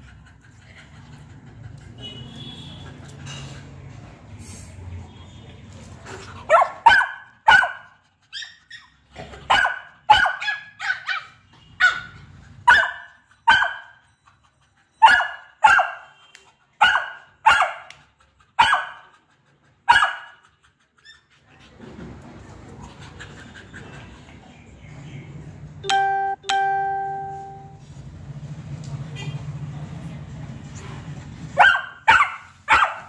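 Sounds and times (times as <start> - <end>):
dog barking: 6.5 - 7.9, 9.5 - 14.0, 15.0 - 16.1, 16.8 - 18.0, 18.6 - 19.0, 19.9 - 20.4, 31.6 - 33.0.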